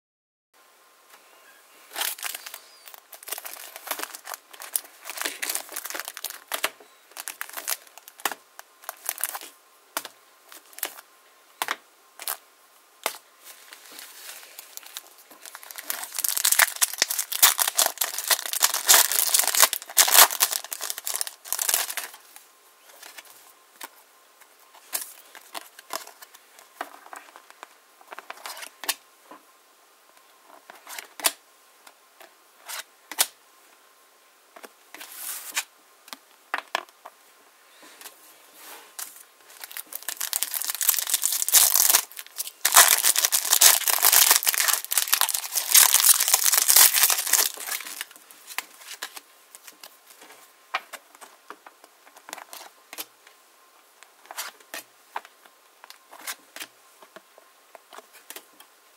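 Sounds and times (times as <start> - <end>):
cards rustling and clicking: 1.9 - 11.0, 13.0 - 24.0, 39.0 - 53.1
foil pack crinkling and tearing: 1.9 - 11.0, 13.1 - 22.2, 39.0 - 50.0.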